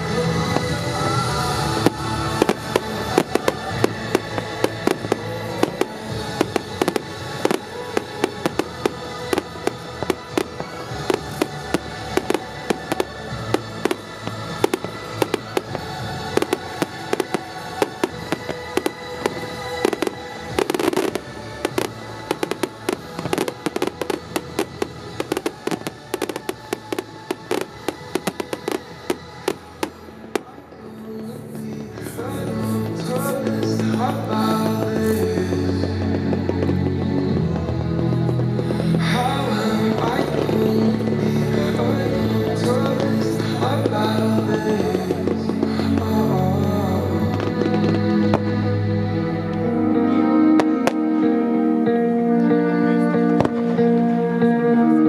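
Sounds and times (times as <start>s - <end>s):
fireworks bursting: 0.0s - 51.4s
music playing: 0.0s - 55.0s.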